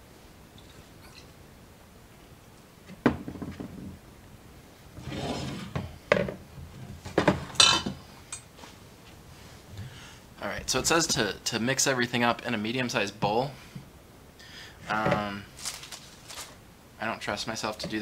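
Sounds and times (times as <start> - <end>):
dish scraping: 5.0 - 6.4.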